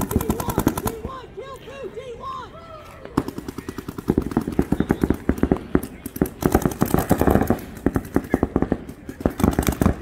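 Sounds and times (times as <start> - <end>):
paintball markers firing: 3.2 - 10.0.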